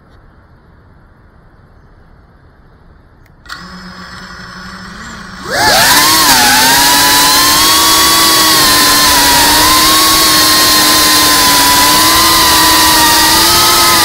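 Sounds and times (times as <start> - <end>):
drone propellers buzzing: 3.5 - 14.0.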